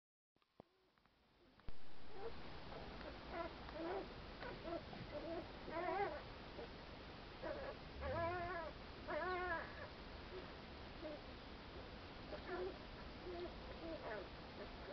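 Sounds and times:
puppies whimpering and whining: 2.1s - 2.4s, 3.0s - 6.7s, 7.4s - 11.2s, 11.8s - 14.9s.

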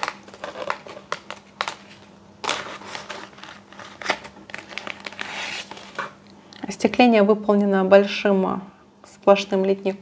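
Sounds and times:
plastic bag crinkling: 0.0s - 6.2s.

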